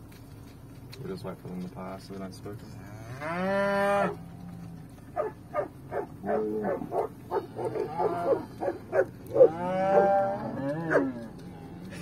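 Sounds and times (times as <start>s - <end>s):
cow mooing: 2.7s - 4.9s, 5.5s - 12.0s
dog barking: 5.2s - 10.1s.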